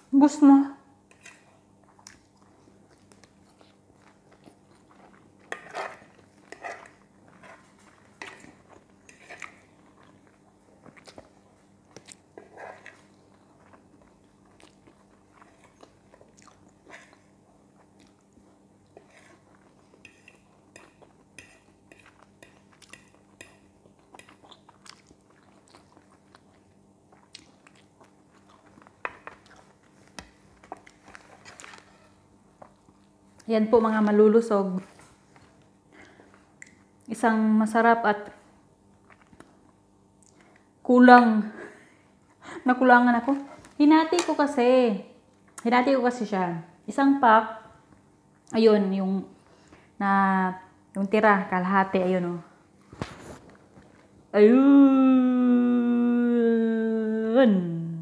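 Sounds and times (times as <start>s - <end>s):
faint steady hum: 0.0s - 58.0s
person chewing noodles: 1.2s - 33.5s, 38.8s - 40.7s.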